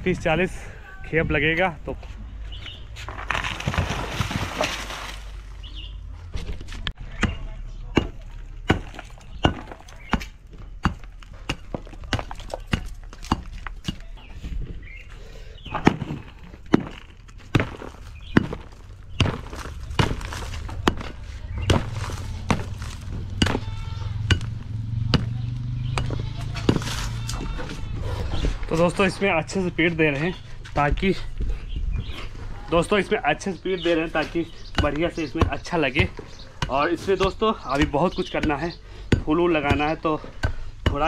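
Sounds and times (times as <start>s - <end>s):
stick thudding on soil: 15.7s - 27.5s.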